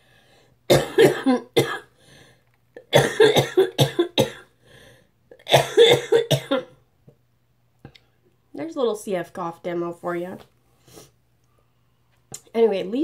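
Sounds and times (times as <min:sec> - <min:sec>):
woman coughing rapidly: 0:00.7 - 0:01.9, 0:02.8 - 0:04.5, 0:05.4 - 0:06.8.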